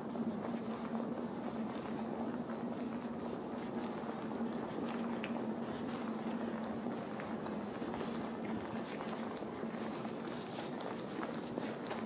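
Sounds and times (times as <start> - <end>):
footsteps on stone paving: 0.2 - 12.0.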